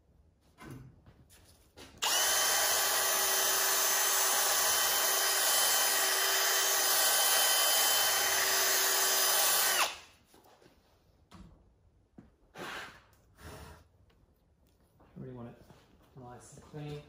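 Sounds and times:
cordless power tool running: 2.0s - 10.1s.

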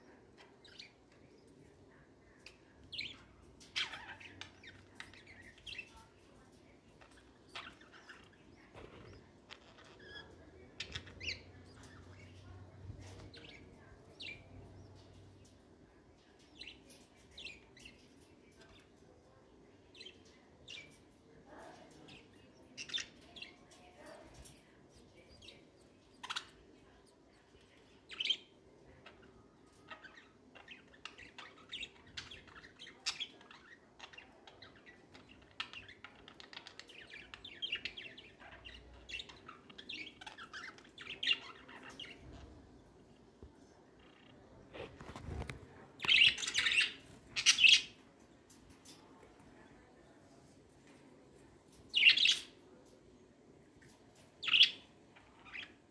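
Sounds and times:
budgerigars chirping: 46.0s - 47.9s.

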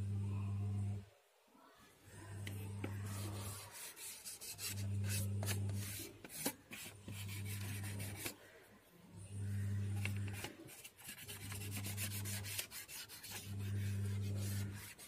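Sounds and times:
low hum: 0.0s - 1.1s
pad rubbing on plastic plate: 2.8s - 8.4s, 9.9s - 15.0s
small clicks and scrapes: 10.0s - 15.0s.

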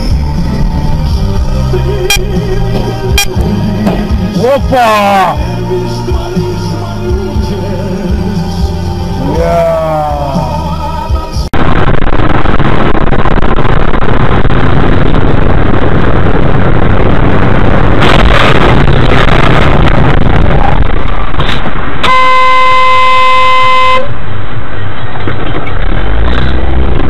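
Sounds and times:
loud distorted vehicle noise: 0.0s - 27.0s
car horn steady tone: 3.1s - 3.4s, 22.0s - 24.2s.

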